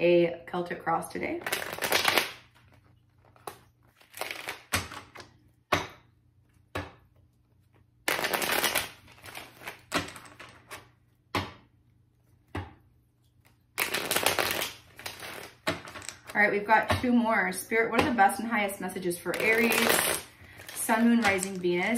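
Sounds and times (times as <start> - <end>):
cards riffling and snapping: 1.4 - 5.4, 13.4 - 16.3.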